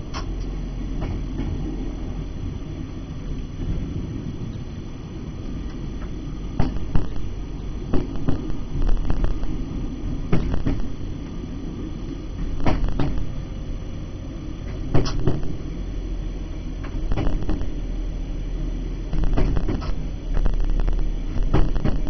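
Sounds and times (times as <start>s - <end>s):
train engine low rumble: 0.0s - 22.0s
running gear knocking on track: 10.3s - 10.9s, 12.6s - 13.2s, 19.2s - 19.9s.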